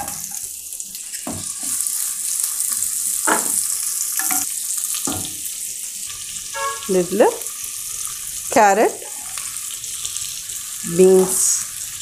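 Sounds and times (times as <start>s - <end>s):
onions sizzling in oil: 0.0s - 12.0s
ladle scraping a pan: 6.5s - 7.0s.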